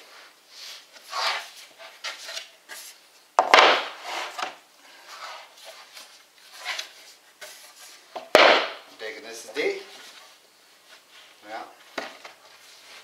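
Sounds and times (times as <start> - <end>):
wooden panels sliding and rubbing: 0.0 - 8.8, 9.8 - 13.0
sharp wooden knock: 3.4 - 4.0, 8.3 - 8.8.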